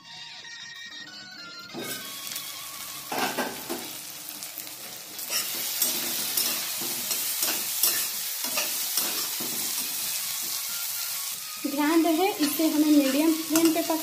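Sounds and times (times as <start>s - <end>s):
vegetables sizzling: 1.8s - 14.0s
spatula stirring and scraping: 5.2s - 11.6s.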